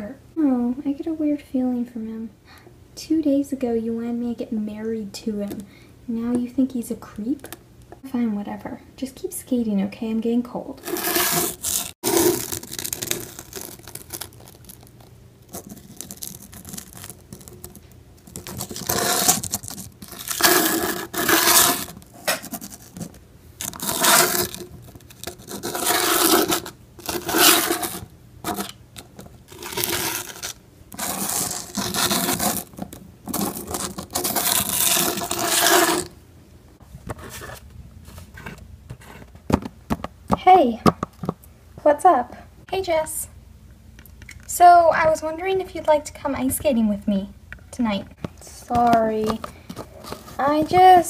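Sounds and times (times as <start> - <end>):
skate scraping strokes: 10.8 - 12.6, 18.6 - 23.0, 25.2 - 28.7, 29.5 - 32.7, 33.3 - 36.1.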